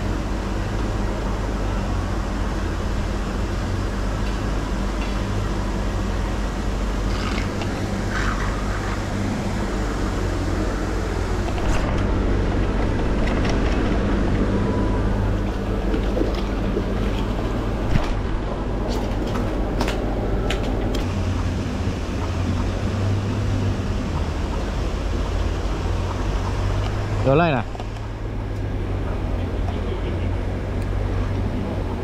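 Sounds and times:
low motor hum: 0:00.0 - 0:32.0
water churning and splashing: 0:05.5 - 0:19.8, 0:21.0 - 0:28.8.

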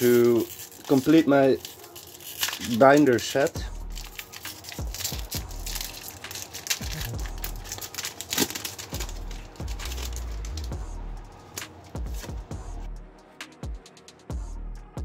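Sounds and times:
foil wrapper tearing and crinkling: 0:00.0 - 0:10.8.

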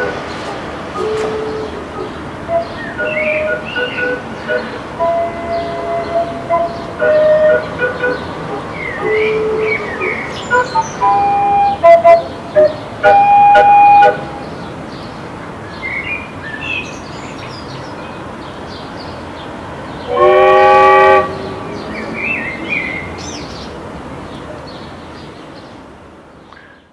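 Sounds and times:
steam whistle chord: 0:01.0 - 0:01.8.

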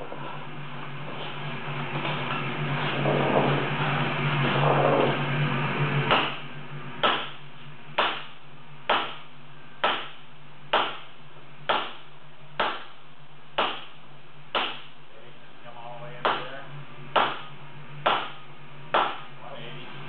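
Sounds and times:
low hum: 0:00.0 - 0:20.0
hammer striking hot iron: 0:06.0 - 0:13.0, 0:13.6 - 0:15.0, 0:16.2 - 0:16.5, 0:17.1 - 0:19.3.

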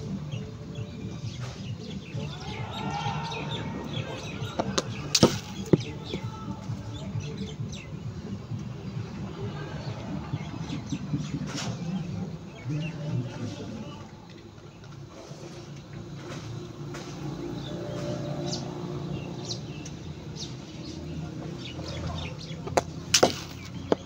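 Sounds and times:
birds chirping: 0:00.0 - 0:24.0
cricket ball bouncing on cement: 0:04.5 - 0:06.3, 0:22.6 - 0:24.0.

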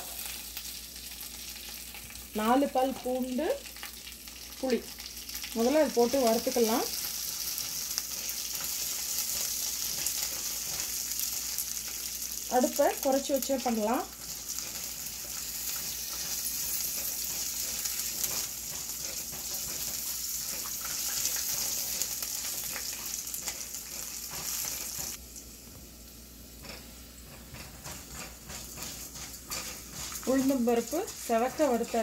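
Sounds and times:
food sizzling in hot oil: 0:00.0 - 0:32.0
spatula stirring and scraping: 0:05.8 - 0:25.2, 0:26.6 - 0:32.0.

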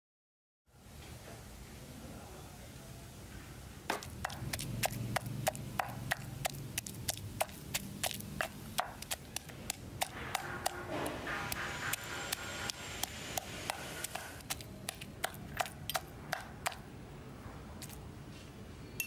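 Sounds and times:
pestle pounding in stone mortar: 0:03.9 - 0:16.8.

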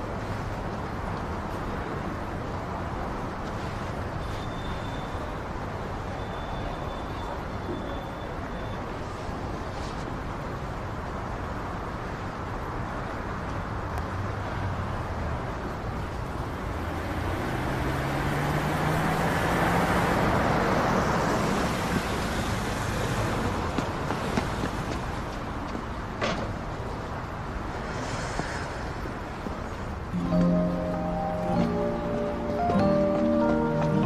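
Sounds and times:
hiss of passing cars: 0:00.0 - 0:34.0
vehicle engine passing by: 0:16.5 - 0:22.0.

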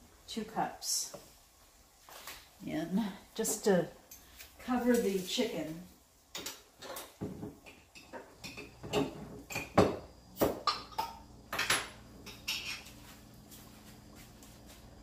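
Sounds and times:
faint steady hum: 0:00.0 - 0:15.0
kitchenware clinking: 0:06.4 - 0:10.0, 0:10.6 - 0:13.0.

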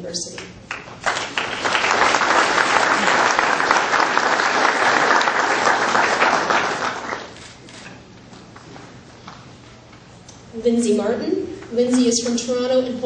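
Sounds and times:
audience applauding: 0:00.7 - 0:07.5.

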